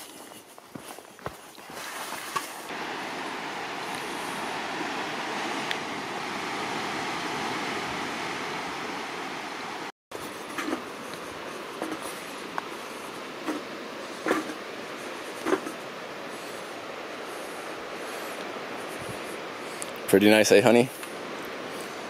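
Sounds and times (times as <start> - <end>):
ocean surf breaking on rocks: 2.7 - 9.9.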